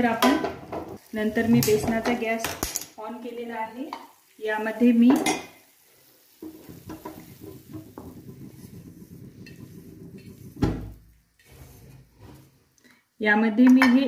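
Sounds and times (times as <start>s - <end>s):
cup scraping and rubbing: 6.5s - 10.7s, 11.4s - 12.6s.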